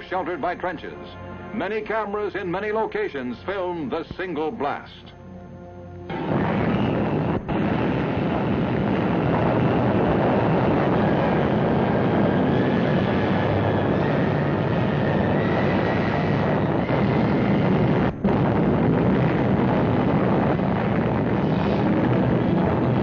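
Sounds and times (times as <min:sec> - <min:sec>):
explosion rumbling roar: 0:06.1 - 0:23.0.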